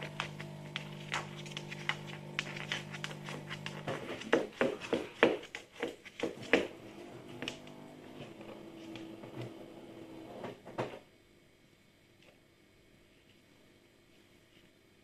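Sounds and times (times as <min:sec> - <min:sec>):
tortoise steps on wooden floor: 0:00.0 - 0:06.8.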